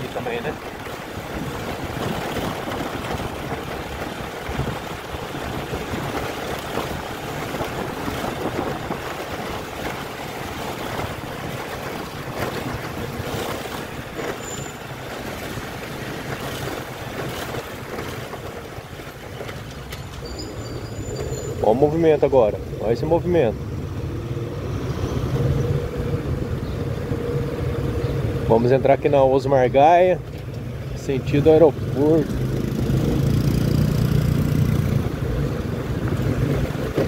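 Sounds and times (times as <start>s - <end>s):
wind on microphone: 0.0s - 14.4s, 32.6s - 37.0s.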